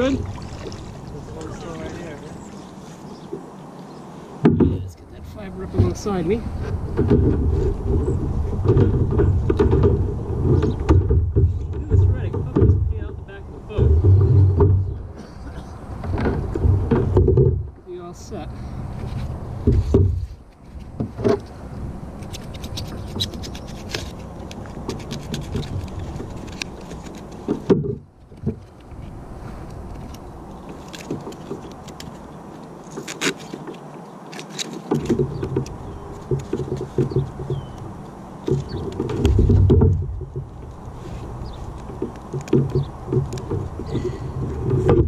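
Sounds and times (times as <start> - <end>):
clicks knocks and scrapes of handling: 5.7 - 12.9, 13.7 - 17.6, 18.9 - 21.6, 22.2 - 45.0
heavy low thumps: 6.8 - 15.2.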